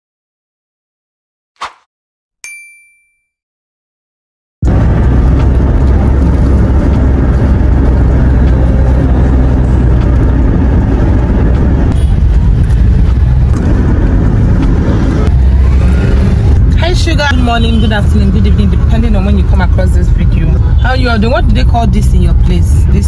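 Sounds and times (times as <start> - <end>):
car cabin rumble: 4.6 - 23.0.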